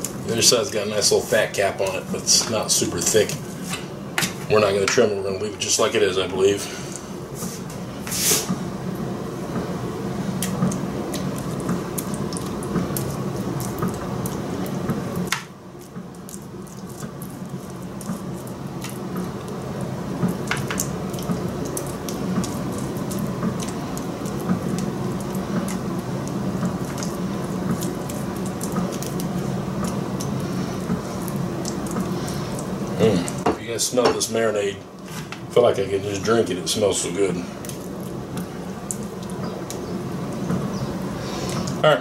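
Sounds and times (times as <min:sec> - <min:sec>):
steady low hum: 0:00.0 - 0:42.0
basting brush dabbing marinade: 0:09.4 - 0:34.5.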